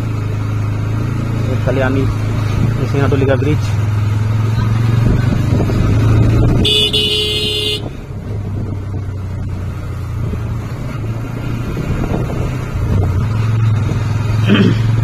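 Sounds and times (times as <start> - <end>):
motorcycle engine running: 0.0 - 15.0
horn beep: 6.6 - 7.9.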